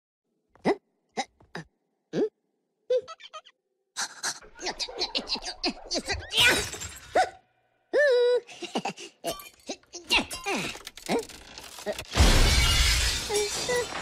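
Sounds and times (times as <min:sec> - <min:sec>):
glass shattering crash: 0:06.3 - 0:07.2, 0:11.9 - 0:14.0.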